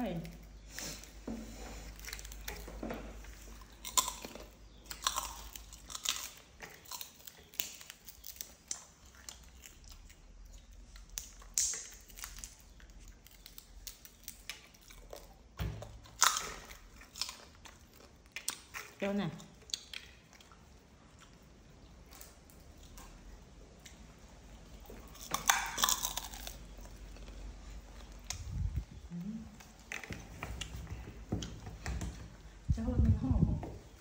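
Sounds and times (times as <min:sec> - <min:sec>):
monkeys crunching snacks: 0:01.8 - 0:23.3, 0:24.9 - 0:28.6.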